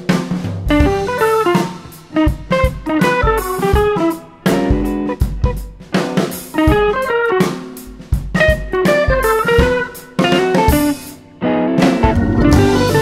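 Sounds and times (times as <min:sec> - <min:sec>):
drum kit: 0:00.0 - 0:13.0
guitar picking notes: 0:00.9 - 0:13.0.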